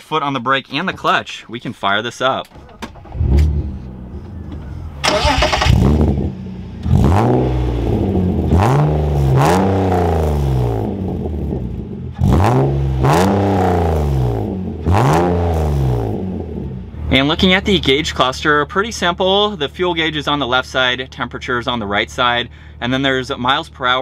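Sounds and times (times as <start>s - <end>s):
car engine starting and revving: 2.5s - 17.9s.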